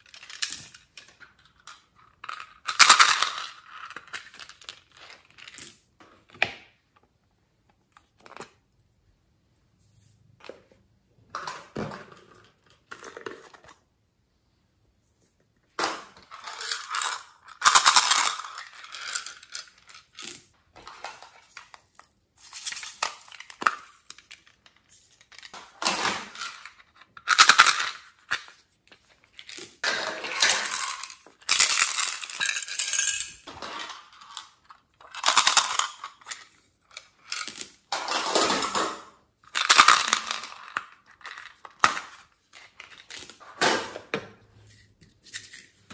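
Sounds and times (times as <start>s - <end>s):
plastic containers handled and opened: 0.0s - 8.8s, 10.0s - 14.0s, 15.0s - 45.9s
beads clinking on plastic and glass: 29.4s - 38.9s.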